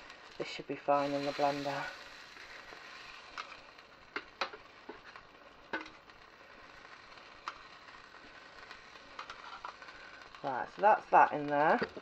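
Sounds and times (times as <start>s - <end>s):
faint steady hiss: 0.0s - 12.0s
tongs clicking on a griddle tray: 4.2s - 6.0s, 8.6s - 10.3s.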